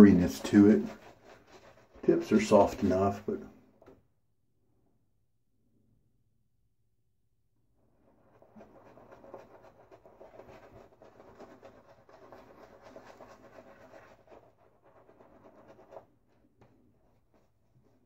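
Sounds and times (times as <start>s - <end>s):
shaving brush scratching: 0.0s - 3.4s, 8.1s - 16.2s.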